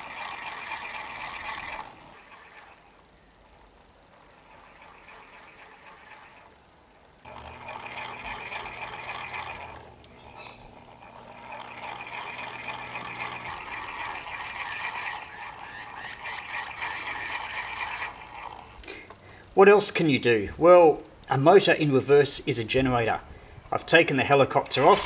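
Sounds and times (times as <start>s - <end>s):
toy motor whirring and rattling: 0.0s - 6.6s, 7.2s - 19.1s.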